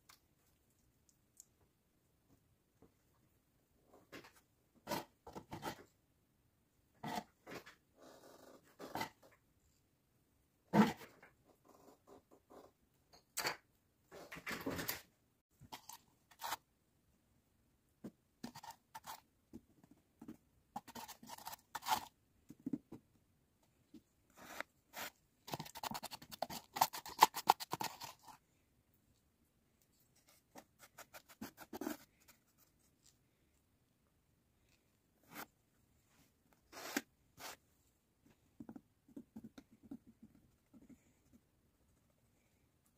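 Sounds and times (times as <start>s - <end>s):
scratches and scrapes: 15.6s - 16.7s, 18.4s - 22.2s, 24.3s - 28.4s, 29.8s - 33.2s, 35.2s - 37.7s.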